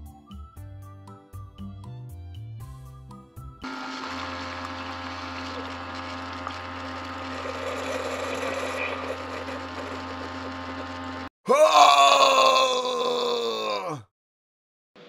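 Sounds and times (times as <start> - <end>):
coffee maker pump humming: 3.6 - 11.3
coffee streaming into a mug: 3.7 - 10.6.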